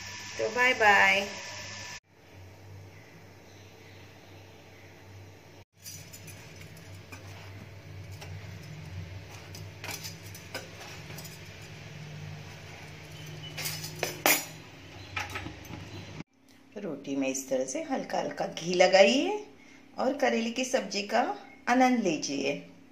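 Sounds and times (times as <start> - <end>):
steady low hum: 0.0 - 20.3
metal cookware clanking: 5.8 - 16.2.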